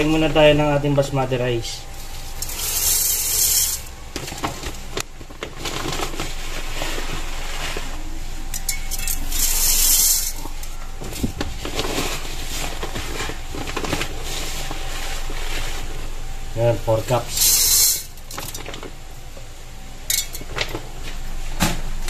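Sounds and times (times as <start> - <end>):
rice grains clicking and rustling: 2.2 - 3.9.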